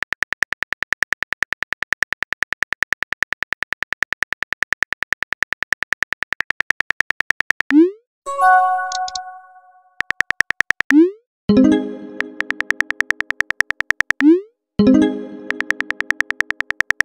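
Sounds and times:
synthetic keyboard typing clicks: 0:00.0 - 0:14.5, 0:15.4 - 0:17.0
brief multi-tone chime: 0:08.3 - 0:10.0.

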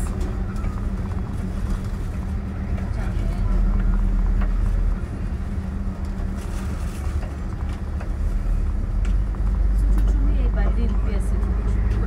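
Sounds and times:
engine and road hum: 0:00.0 - 0:12.0.

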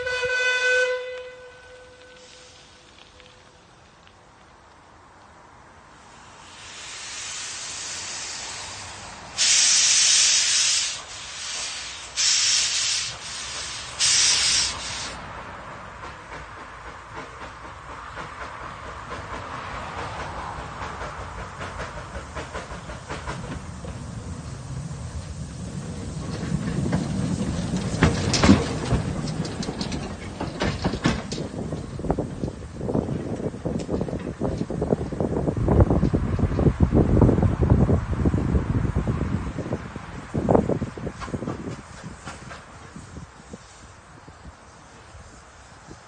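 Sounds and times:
steam blasts: 0:02.1 - 0:03.0, 0:06.0 - 0:33.0, 0:40.1 - 0:46.0
steam locomotive hissing: 0:02.1 - 0:03.1, 0:06.0 - 0:15.4, 0:16.0 - 0:35.4, 0:40.1 - 0:46.0.

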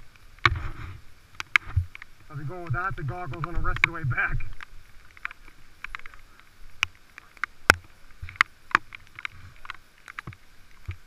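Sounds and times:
faint hiss: 0:00.0 - 0:11.0
sharp taps and clicks: 0:01.4 - 0:06.2.

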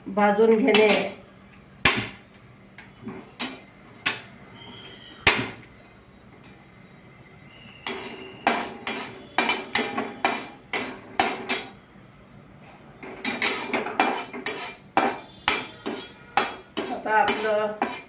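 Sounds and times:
metal spoon scraping a metal pan: 0:07.8 - 0:11.8, 0:13.0 - 0:18.0.

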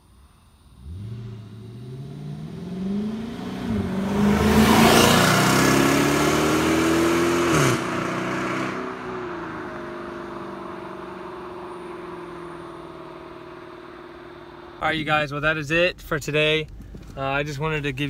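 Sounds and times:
car exhaust accelerating past: 0:00.6 - 0:14.8.

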